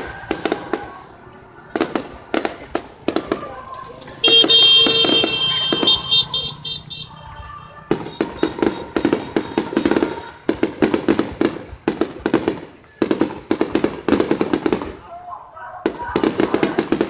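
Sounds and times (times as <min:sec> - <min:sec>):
fireworks cracking and popping: 0:00.0 - 0:15.2, 0:15.8 - 0:17.0.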